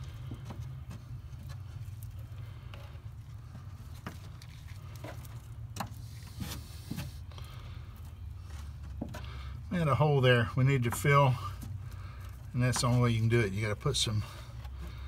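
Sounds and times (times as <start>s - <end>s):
steady low hum: 0.0s - 15.0s
stick tapping and scraping: 10.6s - 15.0s.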